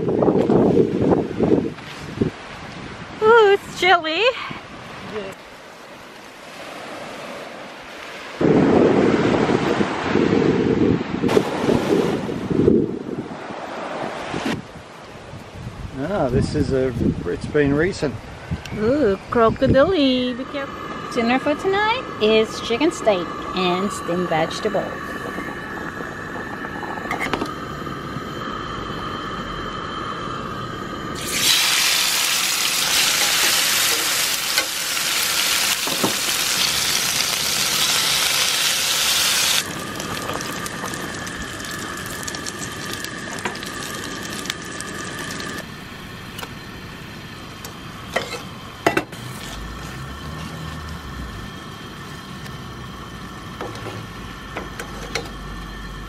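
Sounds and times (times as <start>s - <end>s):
meat sizzling in frying pan: 31.2s - 45.6s.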